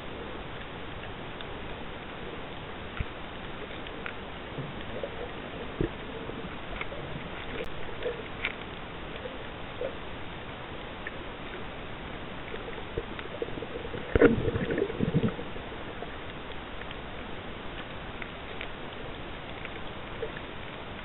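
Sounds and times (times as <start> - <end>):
small clicks and pops: 2.8 - 9.3, 12.4 - 21.0.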